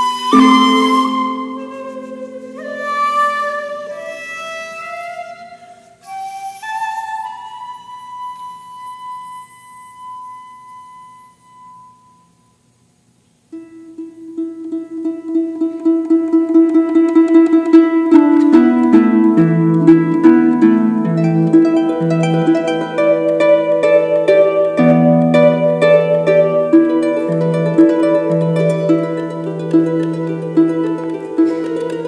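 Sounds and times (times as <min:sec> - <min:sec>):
harp plucked notes: 0:00.0 - 0:08.9, 0:13.5 - 0:32.0
bamboo flute playing: 0:00.0 - 0:12.7, 0:13.5 - 0:32.0.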